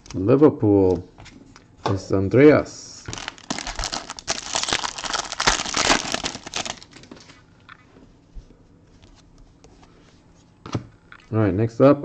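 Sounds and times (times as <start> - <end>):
wrapper crinkling: 3.1 - 7.2.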